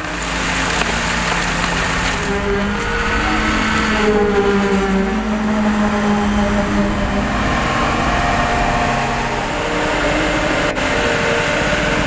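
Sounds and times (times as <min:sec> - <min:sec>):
concrete mixer engine running: 0:00.0 - 0:12.0.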